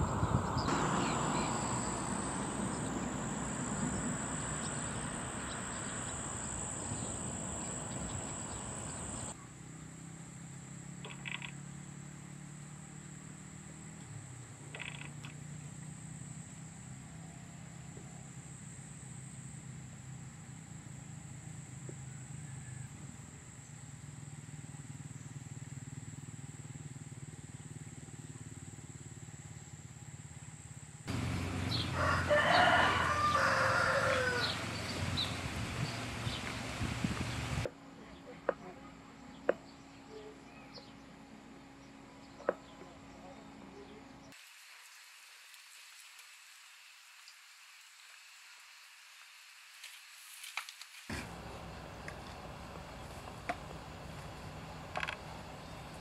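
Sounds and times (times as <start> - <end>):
rushing noise: 0.0 - 9.4
high-pitched insect trill: 0.6 - 9.4.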